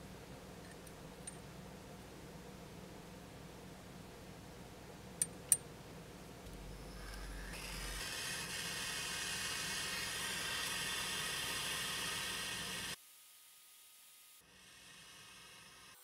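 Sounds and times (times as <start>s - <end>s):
gas torch flame hissing: 7.0s - 13.0s.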